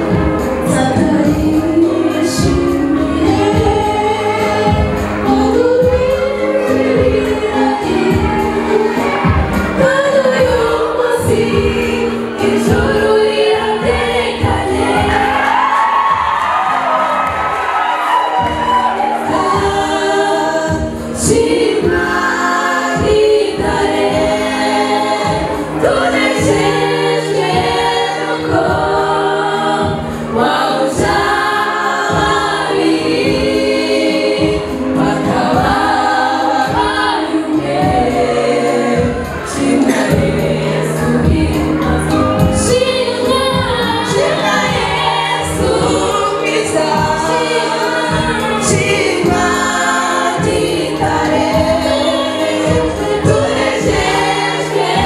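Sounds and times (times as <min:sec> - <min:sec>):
women singing gospel song: 0:00.0 - 0:55.0
steady beat: 0:13.8 - 0:29.2, 0:34.4 - 0:55.0.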